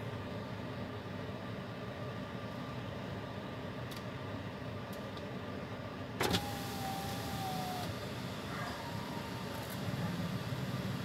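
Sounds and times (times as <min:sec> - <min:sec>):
power window motor whine: 0:06.2 - 0:11.0.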